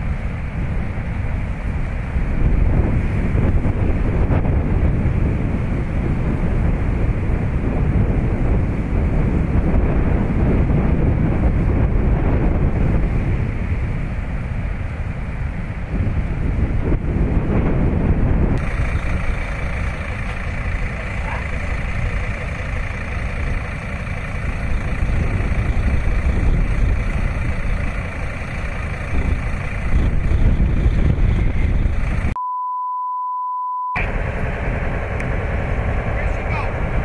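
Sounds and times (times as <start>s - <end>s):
rumble of rushing floodwater: 0.0s - 32.4s, 34.0s - 37.0s
pure steady test tone: 32.4s - 34.1s.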